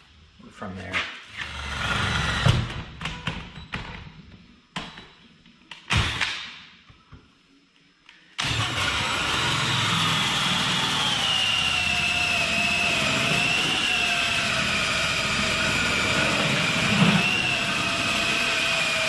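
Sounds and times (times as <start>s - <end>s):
cordless drill cutting metal: 8.4s - 19.0s.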